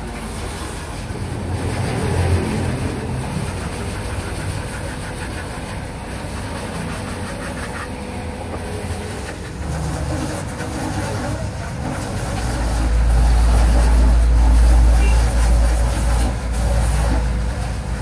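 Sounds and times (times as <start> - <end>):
low mechanical rumble: 0.0 - 18.0.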